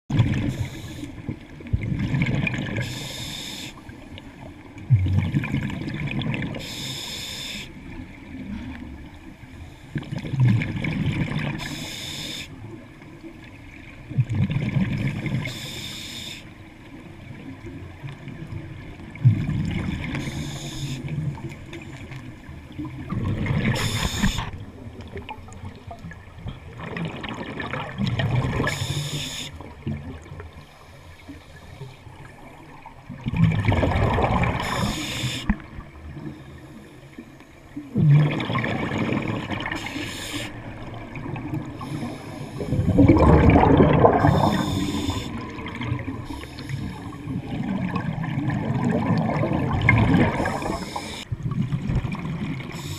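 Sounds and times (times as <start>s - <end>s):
regulator hiss on inhale: 0.4s - 1.3s, 2.8s - 3.9s, 6.6s - 7.8s, 11.6s - 12.7s, 15.4s - 16.6s, 20.1s - 21.2s, 23.7s - 24.6s, 28.7s - 29.7s, 30.6s - 32.0s, 34.6s - 35.7s, 39.7s - 40.7s, 41.7s - 43.0s, 44.2s - 45.5s, 46.2s - 47.3s, 50.4s - 51.3s, 52.7s - 52.9s
bubbling of exhaled air: 3.8s - 6.8s, 19.0s - 21.6s, 22.4s - 30.6s, 32.2s - 36.7s, 37.8s - 52.9s.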